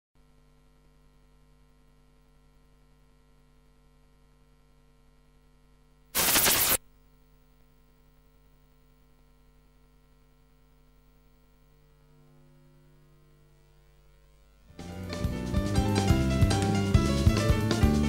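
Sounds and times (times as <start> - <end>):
faint electrical hum: 0.2 - 17.6
loud burst of noise: 6.2 - 6.8.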